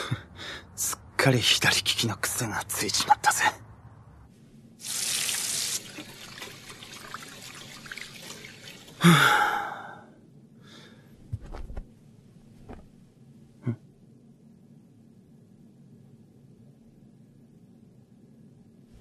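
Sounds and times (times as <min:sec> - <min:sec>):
tap water running into hands: 0:04.8 - 0:09.0
breathy sigh: 0:09.0 - 0:11.1.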